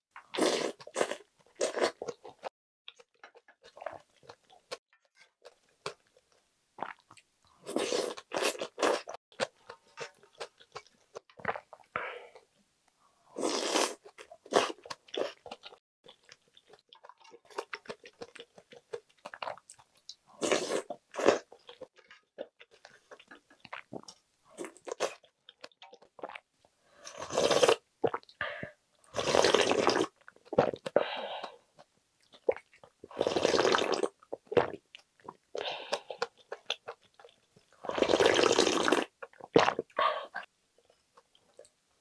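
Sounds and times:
loud slurping of broth: 0.4s - 2.0s, 7.7s - 9.1s, 13.4s - 14.8s, 20.4s - 21.4s, 27.0s - 27.8s, 29.2s - 30.1s, 33.2s - 34.1s, 37.8s - 39.1s
chewing: 13.8s - 26.4s, 34.3s - 37.8s.

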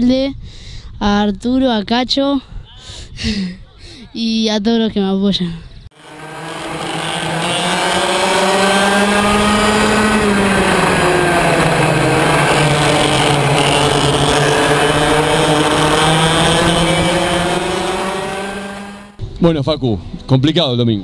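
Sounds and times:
kart engine at high revs: 6.0s - 19.2s.

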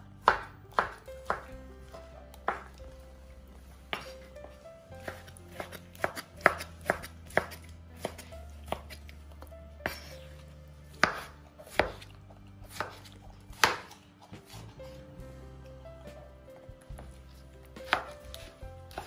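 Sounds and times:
knife chopping on wooden board: 0.2s - 1.5s, 5.0s - 9.0s, 11.0s - 12.0s, 13.6s - 14.6s, 17.9s - 19.0s.

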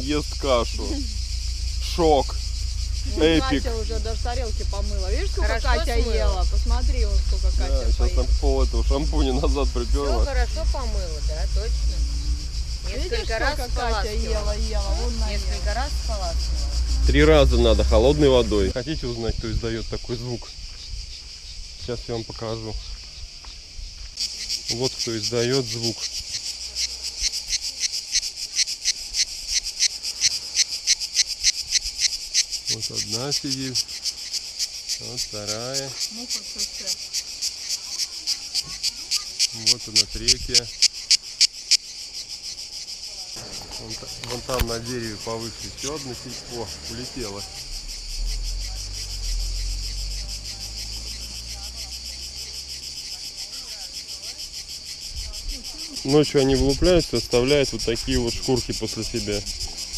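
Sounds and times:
low microphone rumble: 0.0s - 24.0s, 43.4s - 50.3s
cicadas buzzing: 0.0s - 59.9s.

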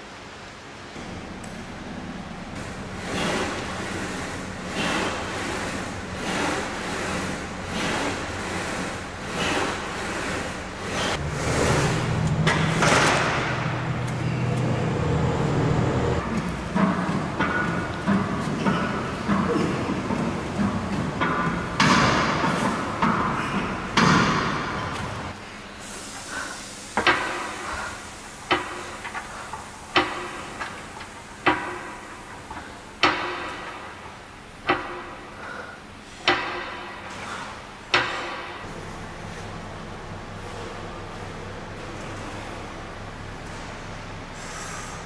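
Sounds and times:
low engine drone: 0.9s - 22.3s
road and traffic noise: 10.8s - 21.2s.

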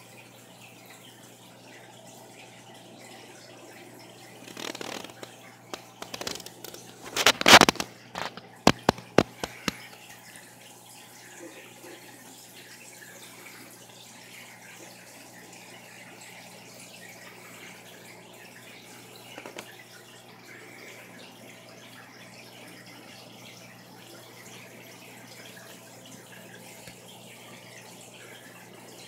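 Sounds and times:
aquarium water trickling: 0.0s - 29.0s
sharp clicks and knocks: 4.5s - 9.9s.

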